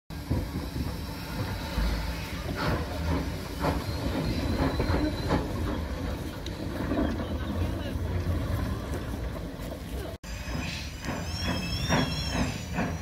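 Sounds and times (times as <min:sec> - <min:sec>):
steam hissing: 0:00.1 - 0:06.3, 0:10.2 - 0:13.0
steam locomotive exhaust chuffs: 0:00.1 - 0:07.2, 0:08.2 - 0:13.0.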